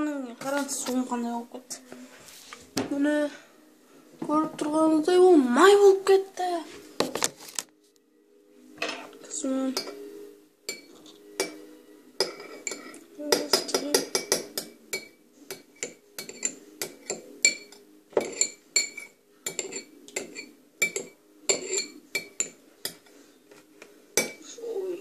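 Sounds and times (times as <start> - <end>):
metal spoon clinking in a bowl: 10.7 - 11.6, 12.2 - 23.1.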